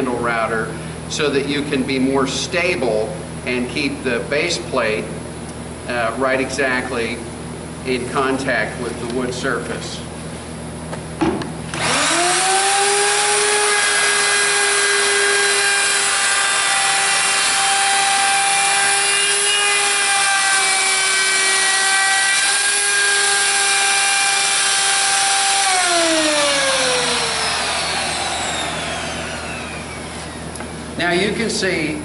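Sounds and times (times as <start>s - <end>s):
router whining cutting wood: 11.7s - 30.8s.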